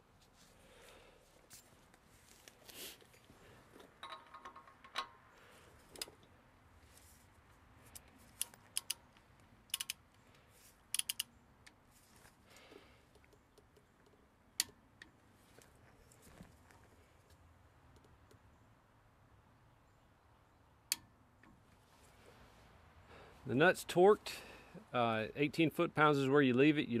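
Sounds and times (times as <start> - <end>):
torque wrench ratchet clicks: 9.7 - 10.0, 11.0 - 11.3.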